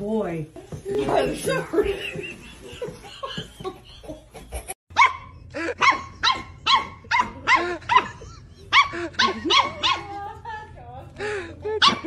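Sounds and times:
puppy barking high-pitched: 0:04.9 - 0:10.2, 0:11.8 - 0:12.0.

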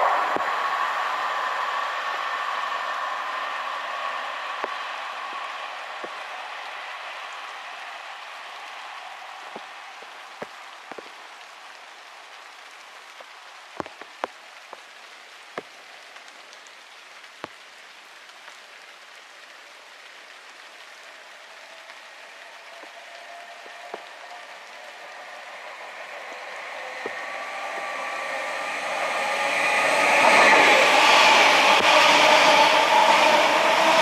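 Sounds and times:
electric train whine: 0:00.0 - 0:10.0, 0:20.8 - 0:34.0
steady rain falling: 0:00.0 - 0:34.0
sharp drips: 0:08.6 - 0:17.8.

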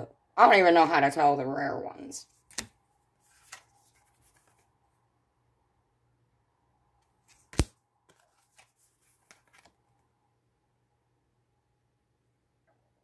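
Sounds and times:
cards clicking: 0:02.4 - 0:02.8, 0:07.3 - 0:09.7
card snap: 0:02.5 - 0:02.8, 0:07.3 - 0:07.8.

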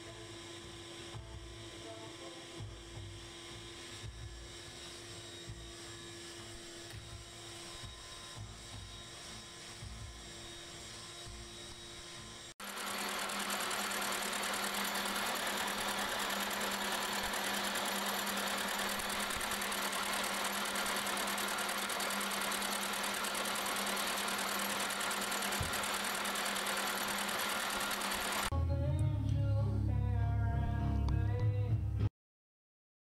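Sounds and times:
music: 0:00.0 - 0:04.7, 0:07.0 - 0:10.7, 0:28.5 - 0:32.1
motor hum: 0:00.0 - 0:28.6
milling machine cutting steel: 0:04.5 - 0:28.5.

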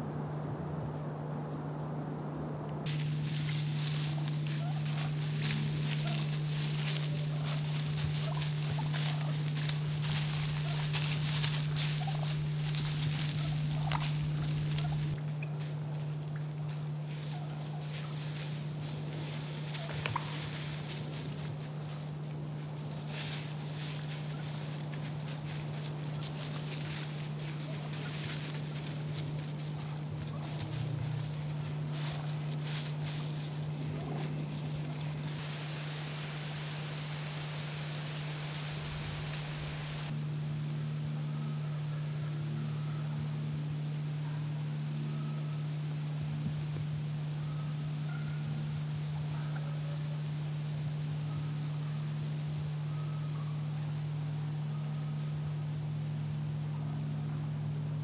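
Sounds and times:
low hum: 0:00.0 - 0:58.0
steady hiss: 0:02.8 - 0:15.2, 0:17.0 - 0:40.6
rustling in dry leaves: 0:02.8 - 0:58.0
turkeys calling: 0:02.9 - 0:40.2, 0:47.3 - 0:50.3, 0:51.2 - 0:54.0
faint hiss: 0:30.6 - 0:40.2.

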